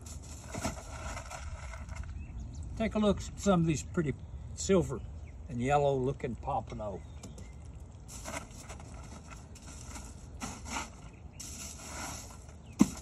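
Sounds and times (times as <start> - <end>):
fish and ice scraping in cooler: 0.0 - 2.3, 8.1 - 13.0.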